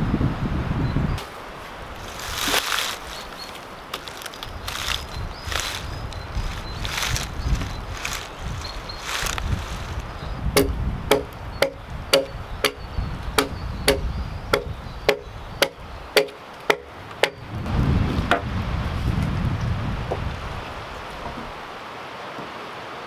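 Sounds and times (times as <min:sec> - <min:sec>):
hatchet chopping wood: 0:10.6 - 0:12.8, 0:13.4 - 0:17.4.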